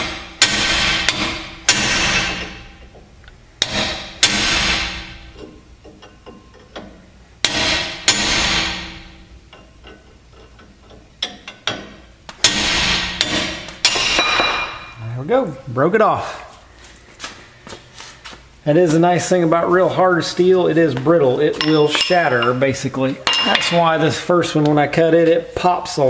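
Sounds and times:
hammer striking steel chisel: 0:00.4 - 0:02.7.

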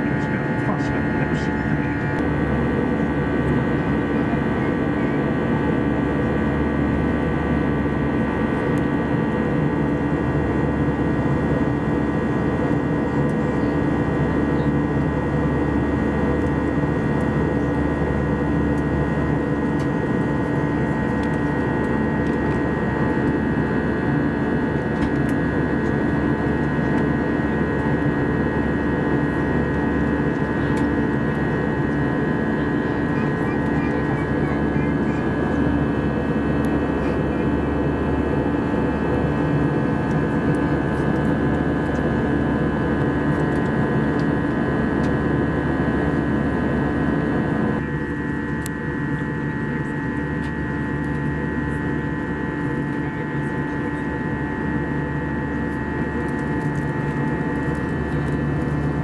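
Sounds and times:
airflow rush in airplane cabin: 0:00.0 - 0:59.0
jet engine drone: 0:00.0 - 0:59.0.

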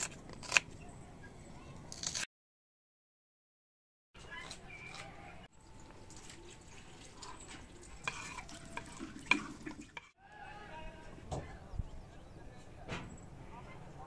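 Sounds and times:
spoon stirring in a pot: 0:06.1 - 0:10.1.

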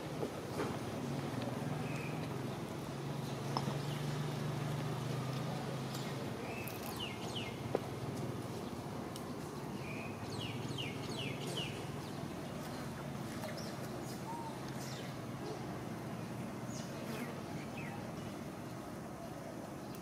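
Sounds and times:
birds chirping: 0:08.5 - 0:15.2.

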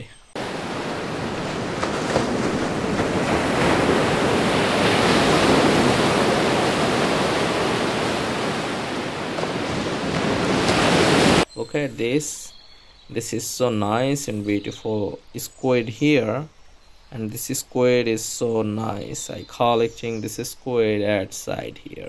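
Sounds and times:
surf washing on a beach: 0:00.4 - 0:11.5.

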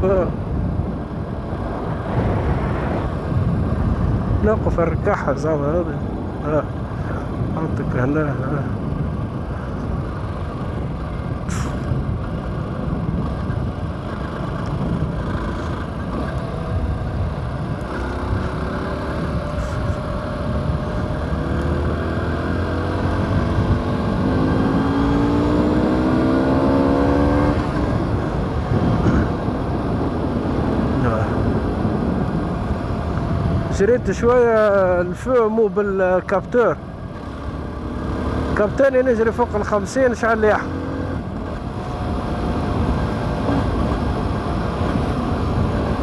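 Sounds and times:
wind rush on microphone: 0:00.0 - 0:46.0
motorcycle engine running: 0:08.4 - 0:33.8, 0:36.6 - 0:46.0.

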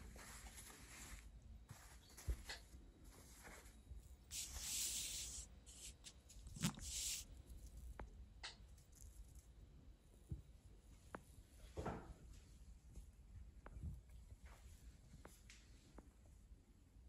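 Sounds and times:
cloth pages rustling: 0:00.0 - 0:07.2.

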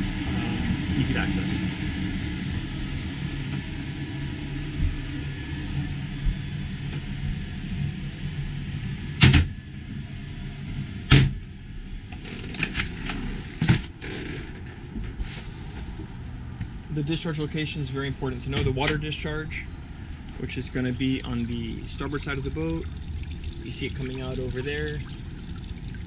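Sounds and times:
air conditioner humming: 0:00.0 - 0:12.0, 0:14.8 - 0:26.0.

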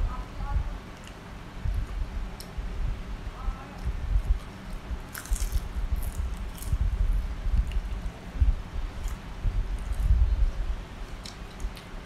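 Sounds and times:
crisp crunches: 0:05.1 - 0:06.8.

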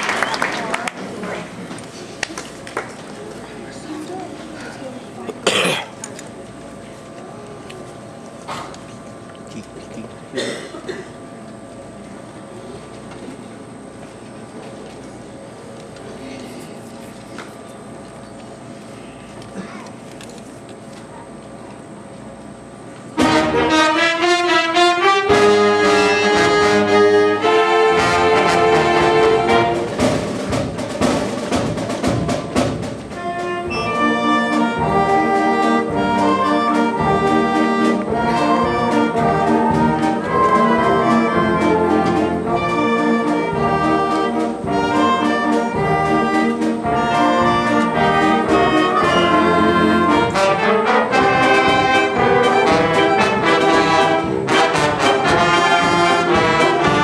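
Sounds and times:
concert band playing: 0:23.2 - 0:57.0.

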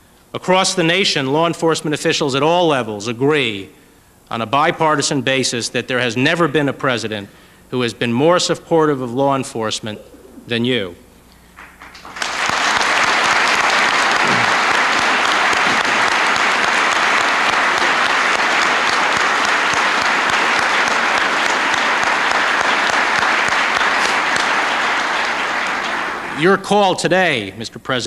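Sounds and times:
audience applause: 0:11.6 - 0:26.5.

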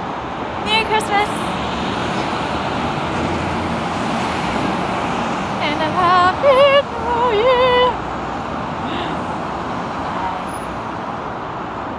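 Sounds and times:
city street traffic: 0:00.0 - 0:11.9
woman's high wavering voice: 0:05.6 - 0:08.0.

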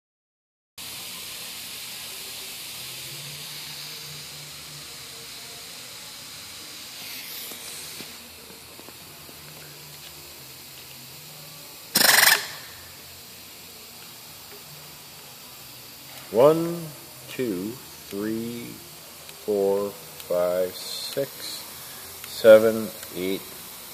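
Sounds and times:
faint steady hiss: 0:00.8 - 0:23.9
compressed air burst: 0:06.6 - 0:08.4, 0:11.9 - 0:13.3.

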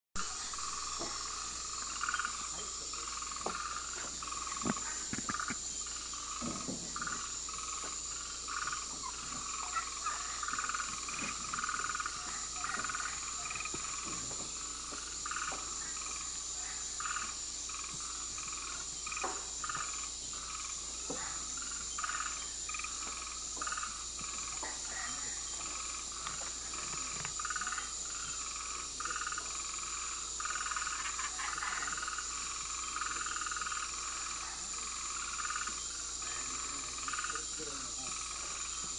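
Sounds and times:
frogs calling: 0:00.2 - 0:38.9
high insect drone: 0:00.2 - 0:38.9.

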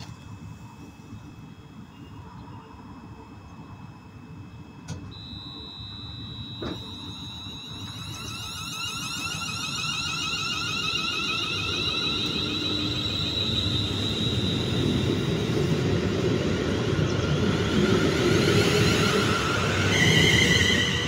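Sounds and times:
rumble of train wheels: 0:00.0 - 0:21.0
electric train motors whining: 0:04.9 - 0:21.0
steady high whistle: 0:04.9 - 0:21.0.

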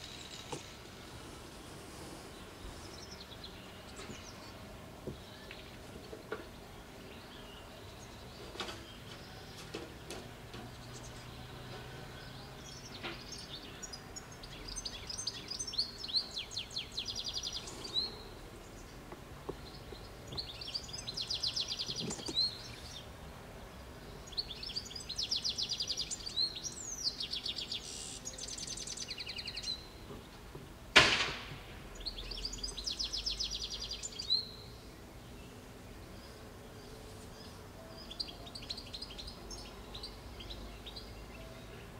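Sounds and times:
songbird trilling song: 0:02.3 - 0:30.4, 0:31.9 - 0:41.9
sharp knock: 0:31.0 - 0:31.6.

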